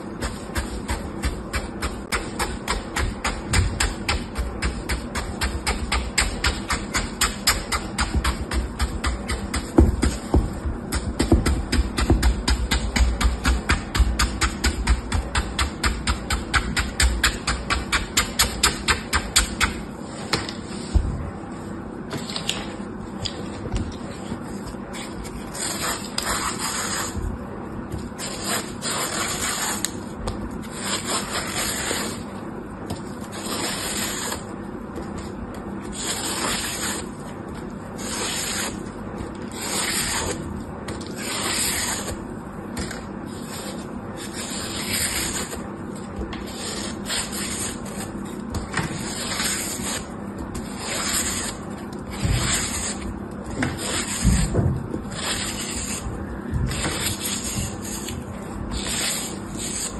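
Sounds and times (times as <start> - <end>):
knife scraping dry soap: 0.0 - 20.8, 24.1 - 27.2, 28.0 - 59.9.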